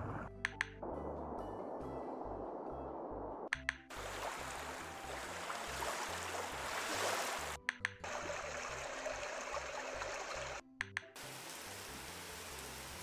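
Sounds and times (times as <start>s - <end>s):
flowing water stream sound: 3.9s - 10.6s, 11.2s - 13.0s.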